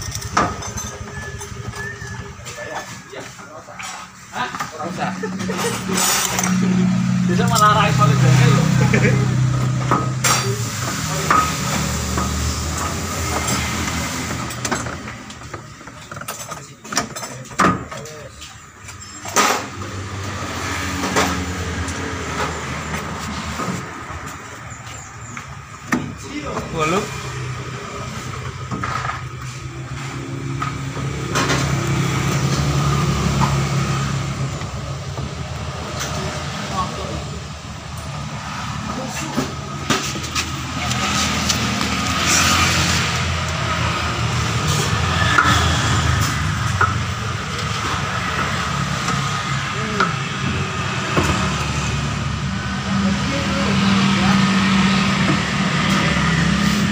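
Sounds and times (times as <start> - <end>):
vehicle engine idling: 0.0 - 16.1.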